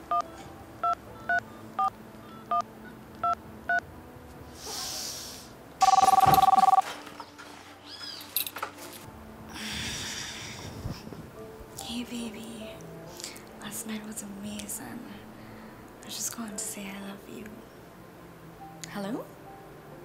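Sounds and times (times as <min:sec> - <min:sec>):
phone keypad dialing beeps: 0:05.8 - 0:06.8
phone ringing: 0:05.8 - 0:06.9.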